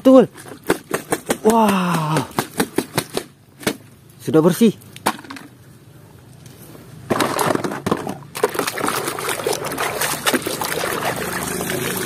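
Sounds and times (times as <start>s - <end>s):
water sloshing in plastic basin: 7.1s - 12.0s.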